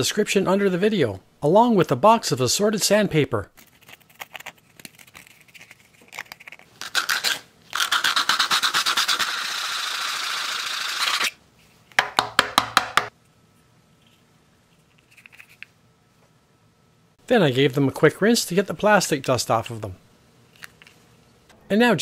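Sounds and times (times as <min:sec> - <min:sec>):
sandpaper scratching plastic: 0:03.6 - 0:11.4.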